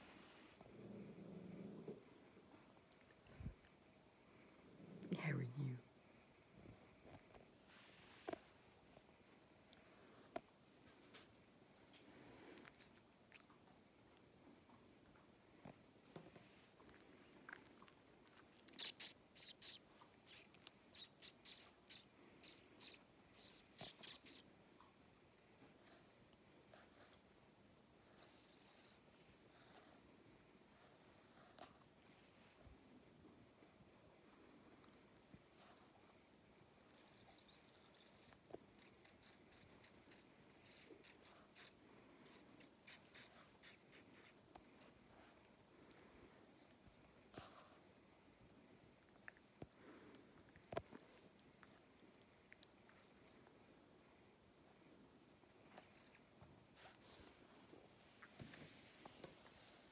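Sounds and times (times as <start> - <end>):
puppies rustling on a blanket: 7.6 - 8.7, 56.0 - 59.9
hiss: 18.8 - 24.4, 36.9 - 44.4
puppy rubbing against sweater: 18.8 - 24.4, 37.0 - 44.4, 55.7 - 56.2.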